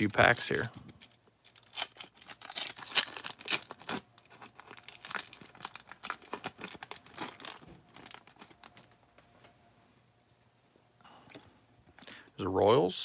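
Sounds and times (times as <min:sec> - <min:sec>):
foil wrapper tearing and crinkling: 0:00.0 - 0:08.9.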